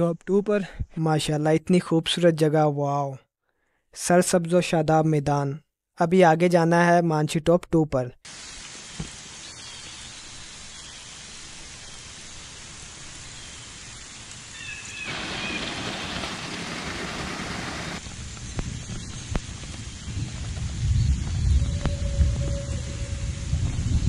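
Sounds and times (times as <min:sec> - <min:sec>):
water rushing: 0:08.3 - 0:18.2
waterfall splashing over rocks: 0:08.3 - 0:19.9.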